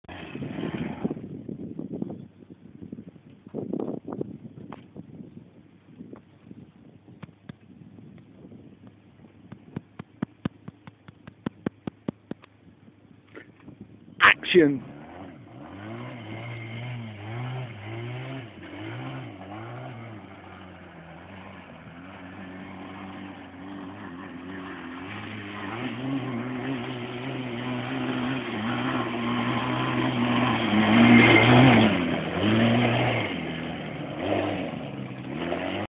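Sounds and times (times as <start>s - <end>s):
quad bike engine revving: 0.1s - 1.3s, 14.2s - 35.9s.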